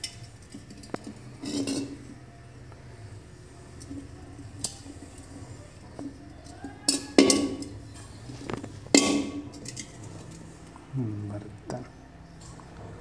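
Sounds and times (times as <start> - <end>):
metal pot clanking on concrete: 0.0 - 2.2, 6.0 - 10.3.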